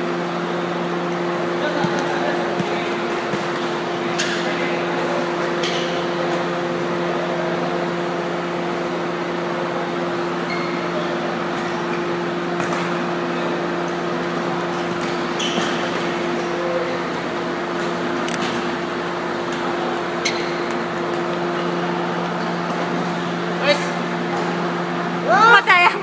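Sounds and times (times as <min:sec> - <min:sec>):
humming hall ambience: 0:00.0 - 0:26.0
shoe squeaks on court: 0:10.4 - 0:11.0, 0:14.6 - 0:16.6, 0:20.1 - 0:20.8.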